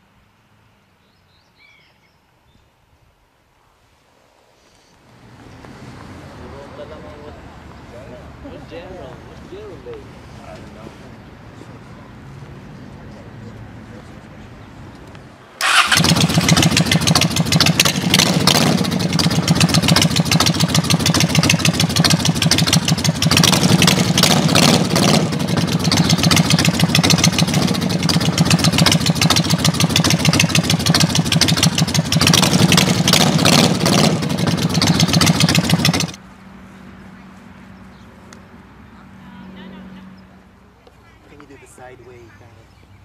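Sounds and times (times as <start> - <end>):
motorcycle engine revving: 15.6 - 36.2.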